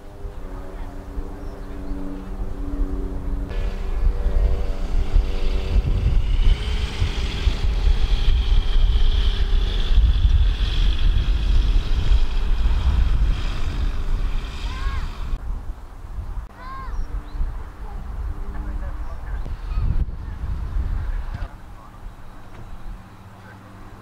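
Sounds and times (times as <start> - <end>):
thin high whine: 0.0 - 15.4
wind buffeting microphone: 0.0 - 24.0.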